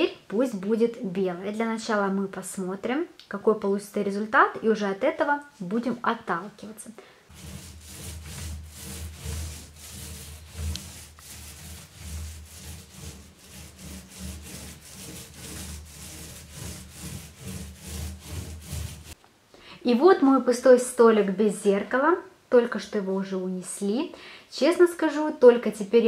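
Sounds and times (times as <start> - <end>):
paint roller rubbing on wall: 7.3 - 19.2.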